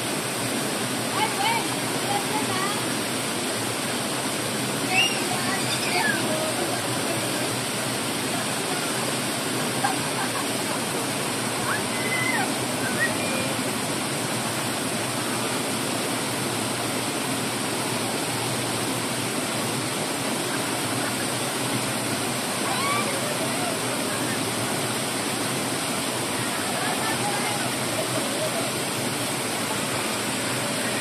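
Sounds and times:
waterfall rushing over rocks: 0.0s - 31.0s.

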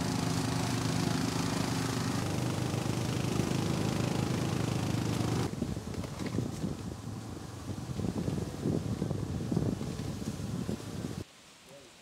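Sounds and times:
utility vehicle engine running: 0.0s - 5.5s.

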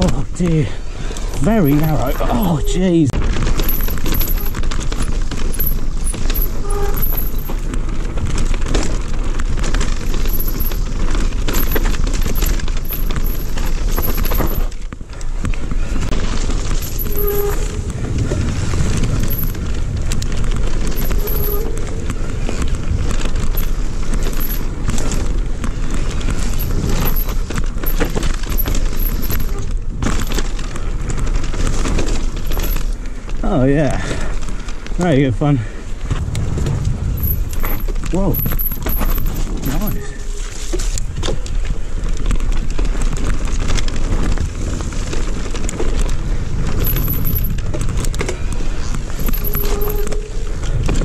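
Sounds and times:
bike rattling on rough trail: 0.0s - 51.0s
wind buffeting microphone: 15.6s - 32.4s, 33.8s - 40.3s, 40.9s - 51.0s.

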